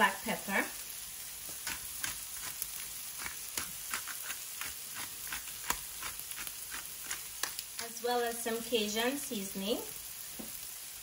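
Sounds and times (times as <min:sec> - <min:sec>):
vegetables sizzling in a skillet: 0:00.0 - 0:11.0
small crackles and pops: 0:01.2 - 0:08.5, 0:09.7 - 0:11.0.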